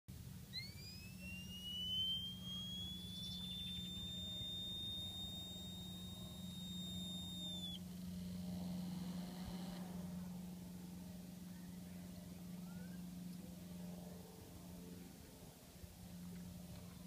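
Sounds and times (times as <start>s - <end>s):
high-pitched fan whistle: 0.1s - 14.1s
steady low hum: 0.1s - 17.0s.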